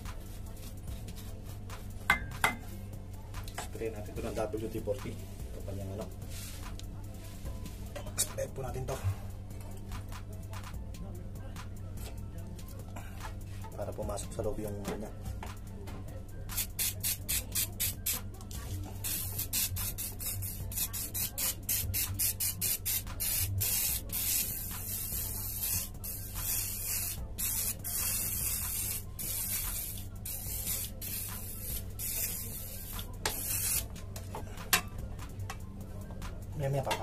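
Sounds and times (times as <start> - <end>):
aerosol can spraying: 16.5 - 18.3, 19.0 - 34.0.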